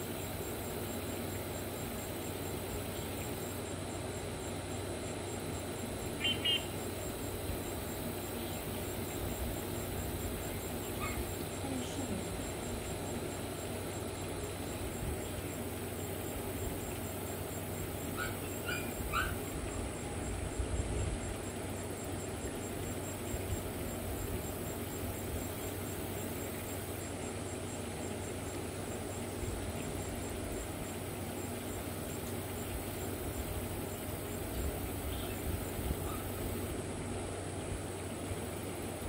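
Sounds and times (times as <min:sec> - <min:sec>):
outdoor background noise: 0:00.0 - 0:39.0
dog barking: 0:11.0 - 0:11.3, 0:18.2 - 0:19.4.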